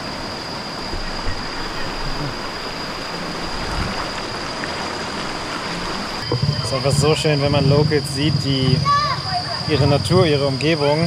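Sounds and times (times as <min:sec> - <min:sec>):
river rushing over boulders: 0:00.0 - 0:07.8
high-pitched tone: 0:06.2 - 0:10.2.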